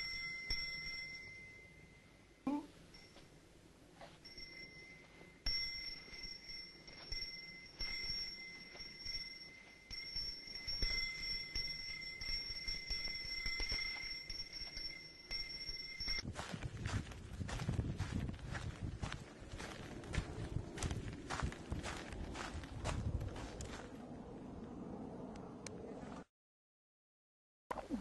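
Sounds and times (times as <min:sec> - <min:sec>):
high-pitched ringing tones: 0:00.0 - 0:16.3.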